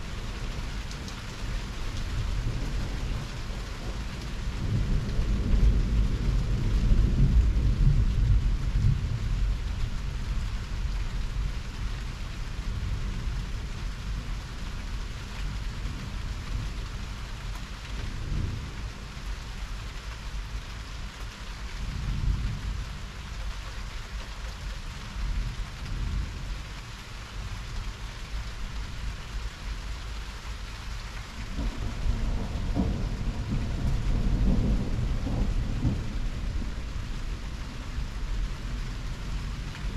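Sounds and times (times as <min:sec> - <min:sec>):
steady rain: 0:00.0 - 0:39.9
rolling thunder: 0:00.3 - 0:10.4, 0:31.3 - 0:39.9.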